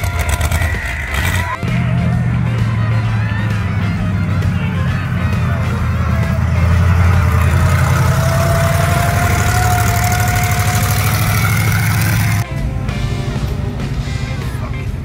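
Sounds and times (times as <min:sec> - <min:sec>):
buggy engine rumbling: 0:00.0 - 0:15.0.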